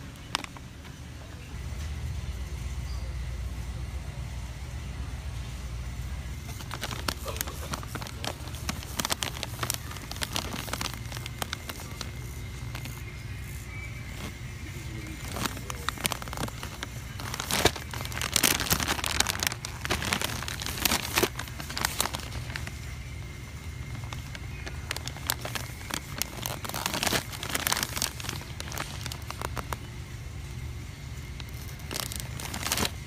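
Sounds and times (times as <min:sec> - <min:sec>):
steady low hum: 0:00.0 - 0:33.0
plastic snack pouch crinkling: 0:06.4 - 0:29.9, 0:31.3 - 0:33.0.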